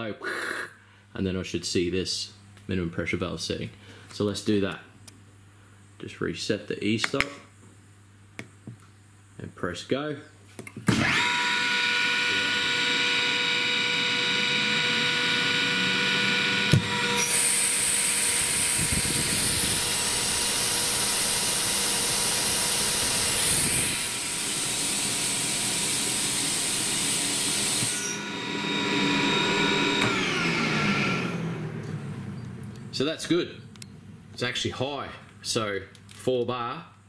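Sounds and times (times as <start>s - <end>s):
compressor whine: 10.7s - 35.8s
compressor click: 29.9s - 30.3s.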